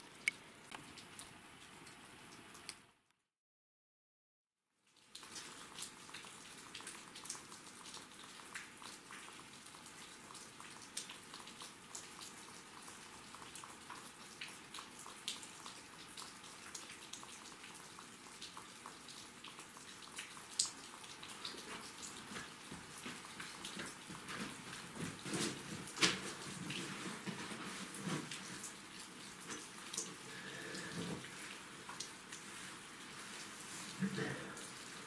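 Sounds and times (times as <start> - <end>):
rain hiss: 26.3 - 35.0.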